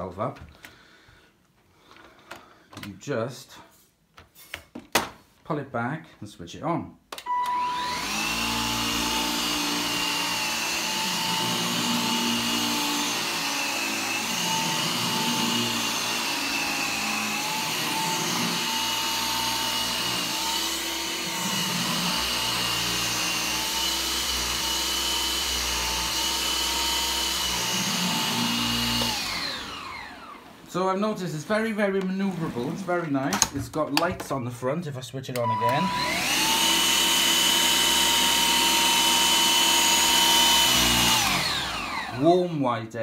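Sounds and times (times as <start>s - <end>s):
vacuum cleaner motor whine: 7.2s - 30.9s, 35.4s - 42.3s.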